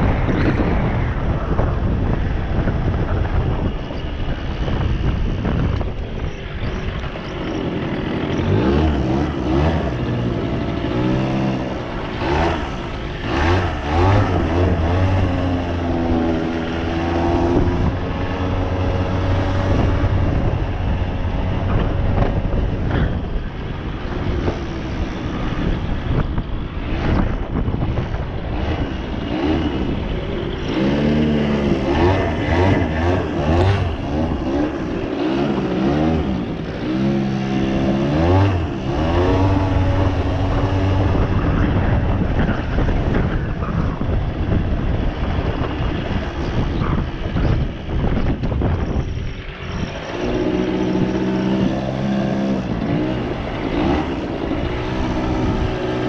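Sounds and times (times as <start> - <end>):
small two-stroke engine revving: 4.6 - 56.0.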